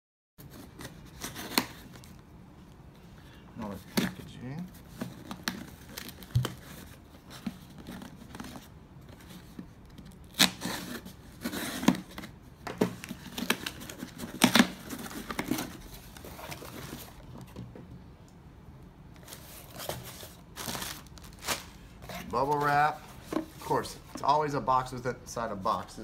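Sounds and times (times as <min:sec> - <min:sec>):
cardboard flaps rustling: 0:03.8 - 0:17.9, 0:19.2 - 0:24.4
packing tape ripping: 0:10.2 - 0:12.1, 0:13.1 - 0:15.8, 0:20.5 - 0:22.3.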